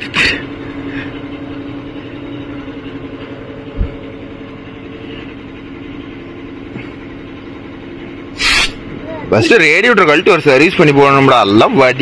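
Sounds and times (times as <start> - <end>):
tractor diesel engine running: 0.0 - 12.0
short low thump: 3.7 - 4.0.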